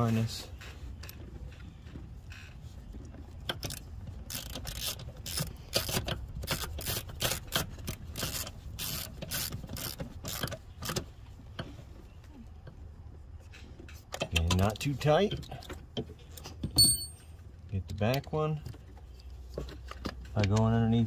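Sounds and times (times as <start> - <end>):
hand ratchet clicking: 3.6 - 11.0.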